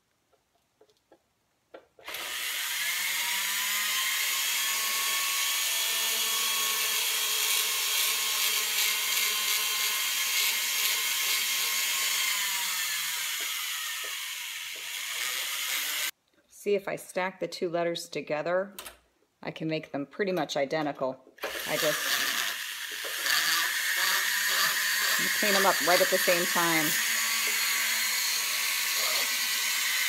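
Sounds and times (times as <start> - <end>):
rotary tool whining: 2.0 - 16.1, 21.4 - 30.0.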